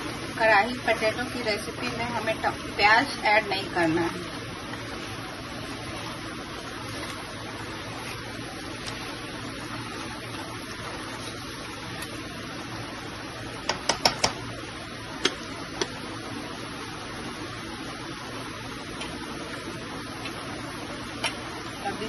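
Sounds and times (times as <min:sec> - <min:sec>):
gas stove hiss: 0:00.0 - 0:22.0
spatula tapping metal pot: 0:13.6 - 0:14.4.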